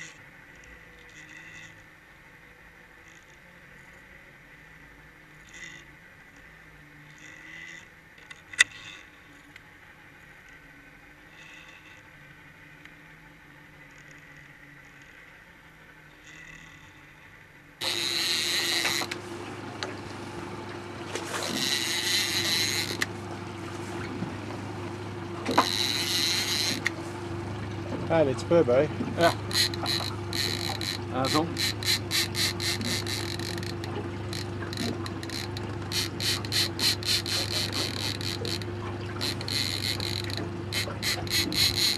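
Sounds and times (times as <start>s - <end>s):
boat engine humming: 0.0s - 41.9s
faint underwater ticks: 5.3s - 9.7s, 13.8s - 41.9s.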